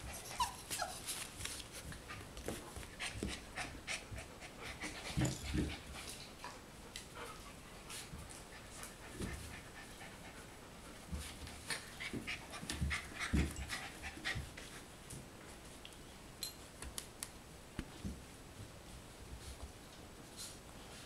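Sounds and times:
puppies panting: 0.0s - 6.4s, 7.1s - 14.8s.

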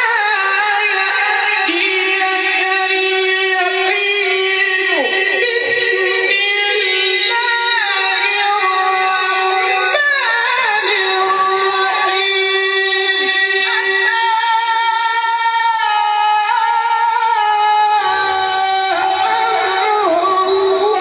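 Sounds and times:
man chanting through microphone: 0.0s - 21.0s.

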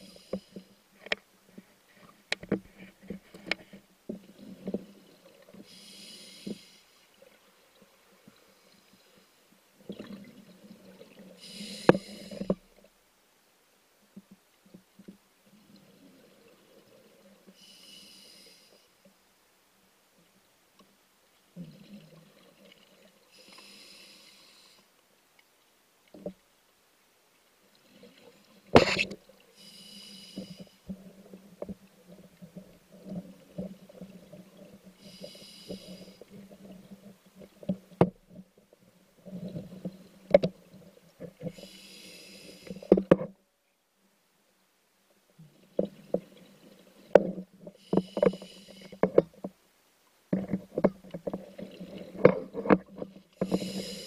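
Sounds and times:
diver breathing through regulator: 5.6s - 6.9s, 11.4s - 12.6s, 23.3s - 24.9s, 29.6s - 30.8s, 35.0s - 36.3s, 41.5s - 42.9s, 47.8s - 49.1s, 53.4s - 54.0s.

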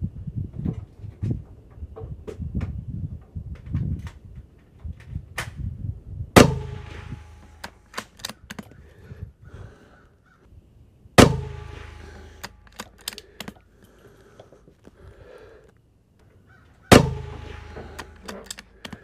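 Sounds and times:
rifle shots with echo: 6.4s - 8.3s, 11.2s - 13.2s, 16.9s - 18.8s.

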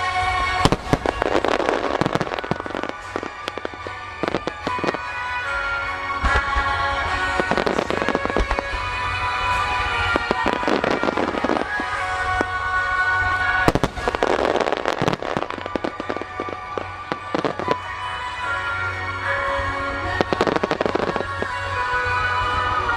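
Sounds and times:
fireworks bursting: 0.0s - 22.9s
fireworks crackling: 0.0s - 22.9s
music playing: 0.0s - 22.9s.

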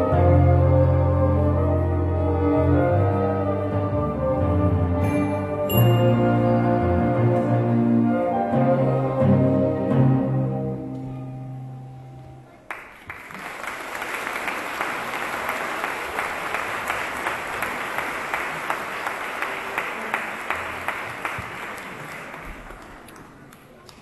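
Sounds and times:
audience applauding: 12.6s - 24.0s.

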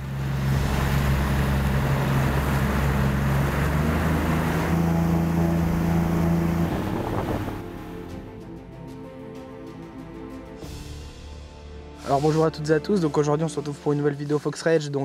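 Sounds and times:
rushing water: 0.0s - 8.7s
wind: 0.0s - 10.1s
outboard engine drone: 0.0s - 11.7s.

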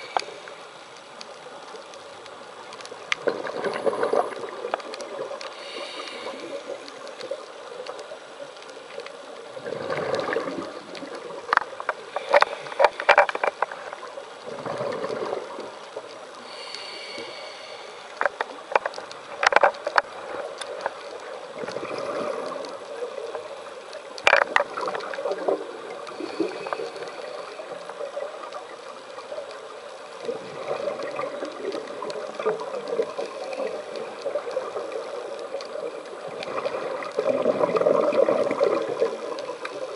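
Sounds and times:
regulator bubbles gurgling: 3.2s - 7.9s, 9.4s - 11.6s, 12.3s - 16.6s, 19.4s - 23.6s, 24.2s - 29.4s, 30.3s - 39.9s
regulator inhalation hiss: 5.5s - 7.1s, 16.4s - 18.3s
sharp clicks and knocks: 18.2s - 21.0s.

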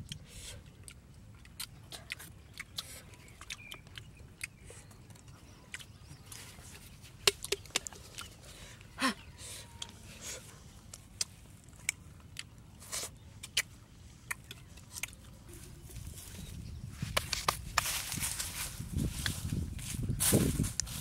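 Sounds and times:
chewing and food handling clicks: 0.0s - 8.4s, 10.9s - 15.4s.

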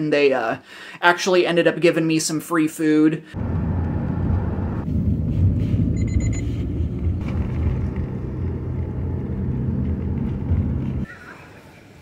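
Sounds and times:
vehicle driving low rumble: 3.4s - 11.1s
rapid high beeps: 6.0s - 6.5s.

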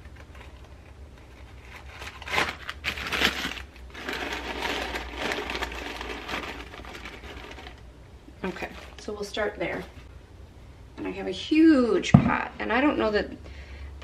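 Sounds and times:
paper filters and wrapper crinkling: 0.0s - 9.9s.

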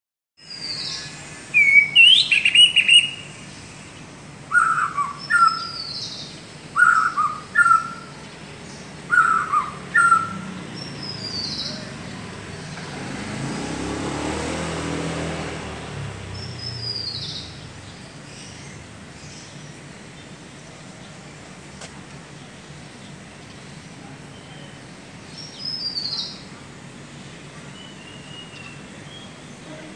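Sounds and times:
bird whistling calls: 0.4s - 3.3s, 4.5s - 8.2s, 9.1s - 11.9s, 25.5s - 26.4s.

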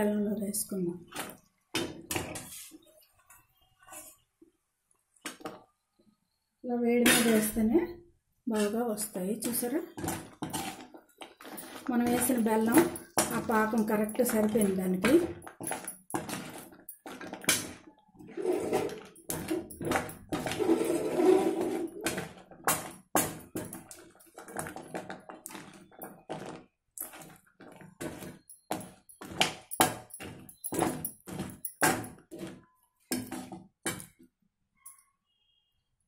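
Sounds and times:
metal spoon scraping metal pan: 8.5s - 22.8s, 23.5s - 34.0s.

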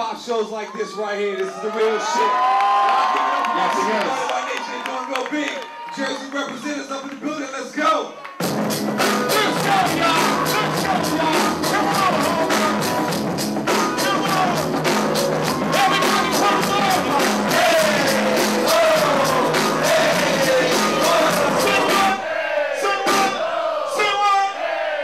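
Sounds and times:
hip hop music over loudspeakers: 8.4s - 24.5s.

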